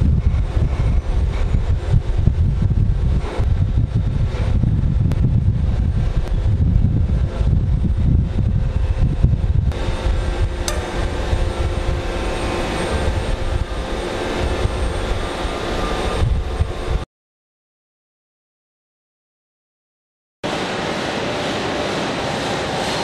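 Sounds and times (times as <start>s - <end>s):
conveyor machinery rumbling: 0.0s - 17.0s, 20.4s - 23.0s
multi-tone motor hum: 0.0s - 17.0s
sharp click: 10.6s - 11.1s.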